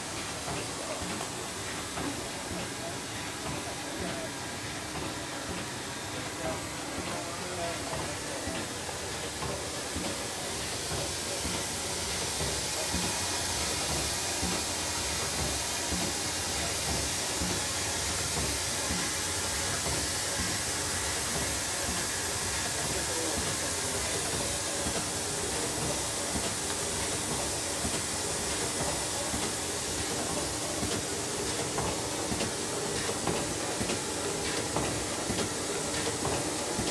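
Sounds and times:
packaging machine hissing: 8.2s - 36.9s.

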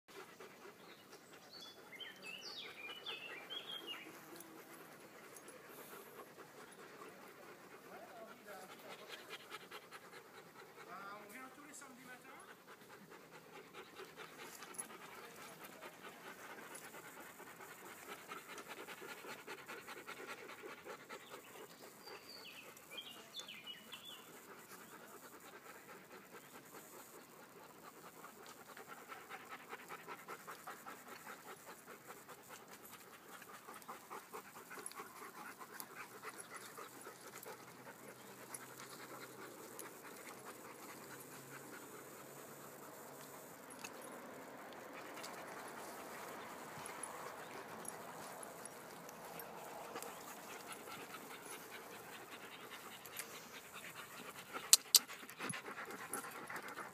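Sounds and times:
dogs panting rapidly: 0.1s - 56.9s.

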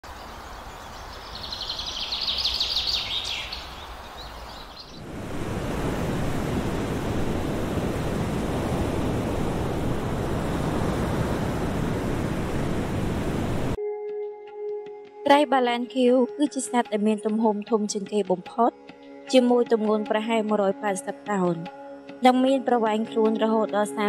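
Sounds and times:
ocean surf and breaking waves: 0.1s - 13.8s.

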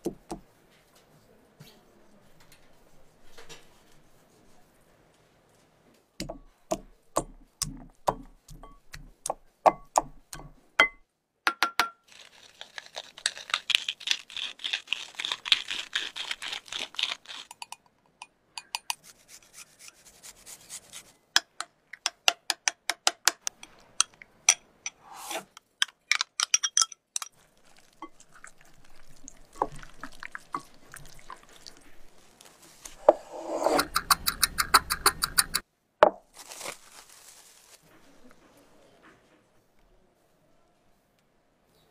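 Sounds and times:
utensils clinking glass bowl: 25.9s - 31.8s.

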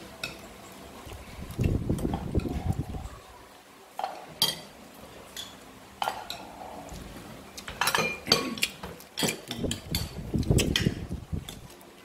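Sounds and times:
spoons and dishes clinking: 5.3s - 6.5s, 7.6s - 11.6s.

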